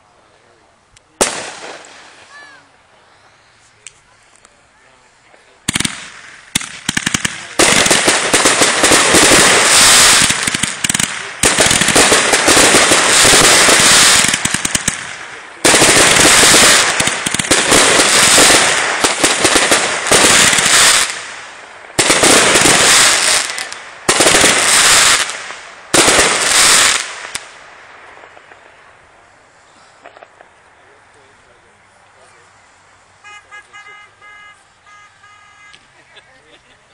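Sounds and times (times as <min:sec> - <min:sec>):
fireworks crackling: 0:01.0 - 0:36.9
fireworks bursting overhead: 0:01.1 - 0:02.7, 0:05.0 - 0:31.7.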